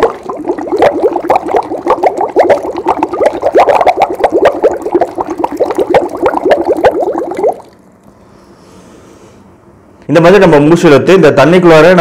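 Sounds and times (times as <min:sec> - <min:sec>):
air bubbling through straw in water: 0:00.0 - 0:07.8.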